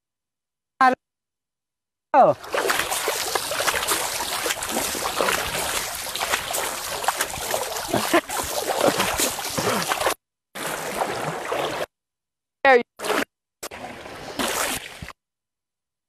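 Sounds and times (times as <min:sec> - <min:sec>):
moving water: 0:02.3 - 0:11.9, 0:13.0 - 0:15.1
water splashing: 0:02.3 - 0:11.9, 0:13.0 - 0:15.1.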